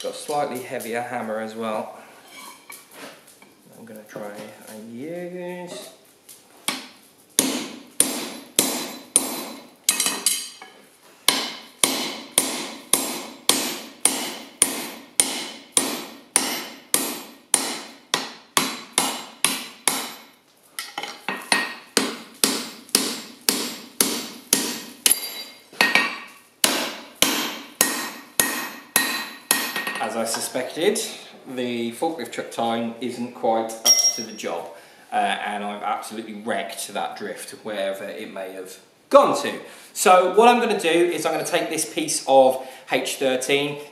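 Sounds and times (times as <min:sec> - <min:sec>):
hammer striking hot steel: 0:06.7 - 0:10.6, 0:11.3 - 0:30.4.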